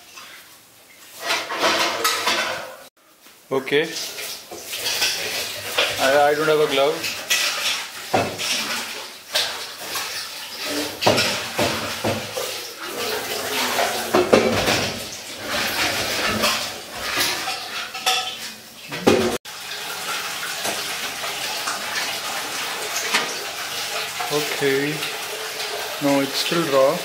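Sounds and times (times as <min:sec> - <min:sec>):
metal tray and cutlery clattering: 0:01.2 - 0:02.9, 0:04.1 - 0:19.4.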